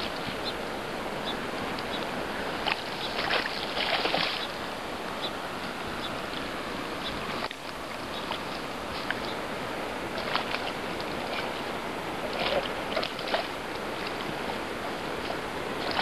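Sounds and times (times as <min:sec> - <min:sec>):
river water rushing: 0:00.0 - 0:16.0
fish splashing: 0:02.4 - 0:04.6, 0:10.0 - 0:16.0.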